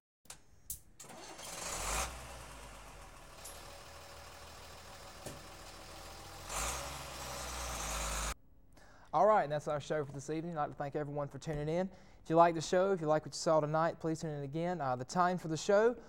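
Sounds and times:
engine rumbling: 1.0s - 8.4s.

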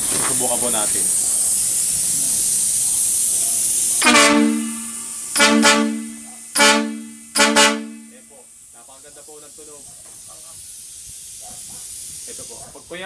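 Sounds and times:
hiss of air: 0.0s - 13.0s
air horn two-note blasts: 4.0s - 8.4s.

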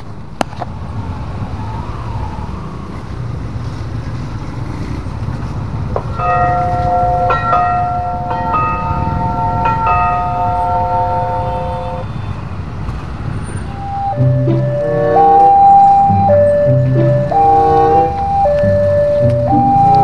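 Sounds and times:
traffic rumble: 0.0s - 20.0s
level-crossing warning bell: 6.1s - 12.2s, 13.7s - 20.0s.

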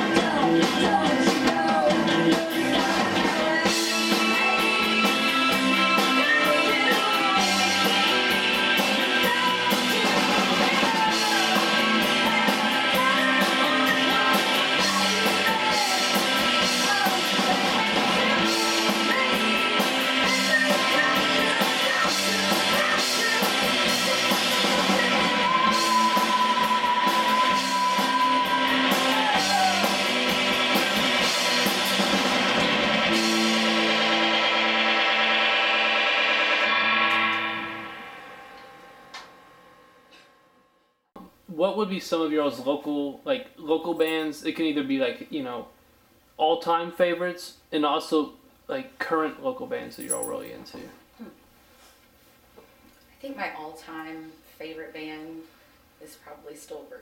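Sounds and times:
electric bass: 0.0s - 39.9s
drum kit: 0.0s - 40.3s
electric guitars: 0.0s - 40.3s.

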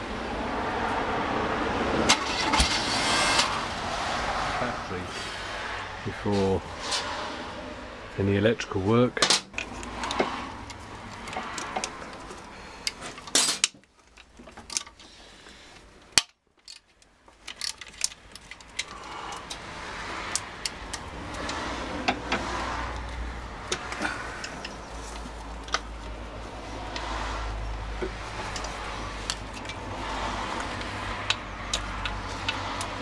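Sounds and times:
small metallic clicks and taps: 9.2s - 15.1s, 20.2s - 26.2s, 28.0s - 29.8s, 30.6s - 33.0s.

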